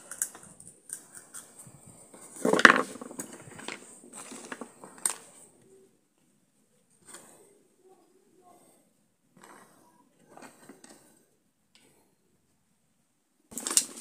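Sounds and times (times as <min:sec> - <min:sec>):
dry plant pieces crackling: 0:02.4 - 0:05.1, 0:13.5 - 0:14.0.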